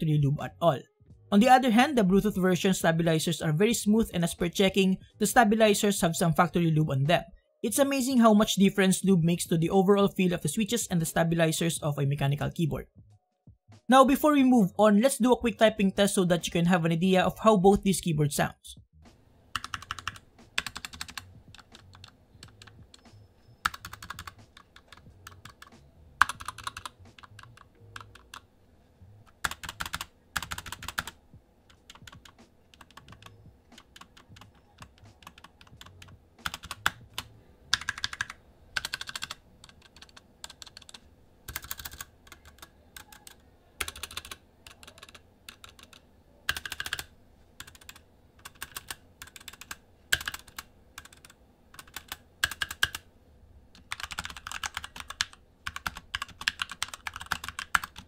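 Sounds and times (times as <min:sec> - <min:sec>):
mechanical keyboard typing: 0:19.5 - 0:28.5, 0:29.3 - 0:53.0, 0:53.8 - 0:58.0.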